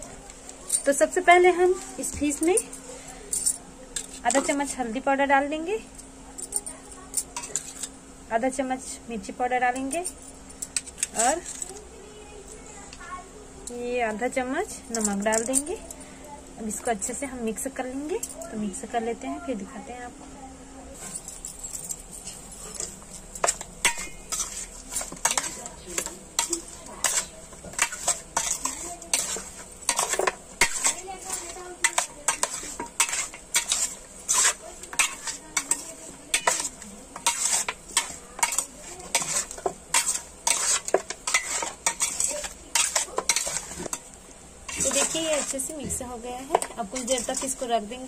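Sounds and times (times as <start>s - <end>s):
spoon scraping a metal bowl: 7.2s - 8.0s, 21.0s - 45.8s, 46.5s - 48.0s.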